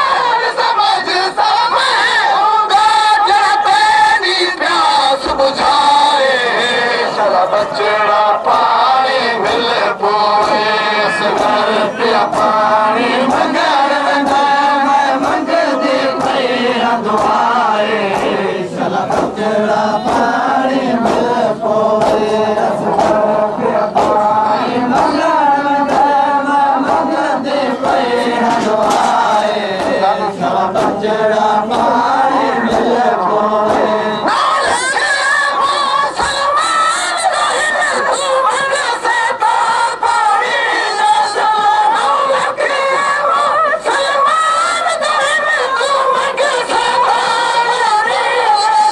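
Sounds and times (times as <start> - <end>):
crowd of men chanting: 0.0 - 48.9
hands slapping chests: 16.1 - 25.2, 25.8 - 34.9.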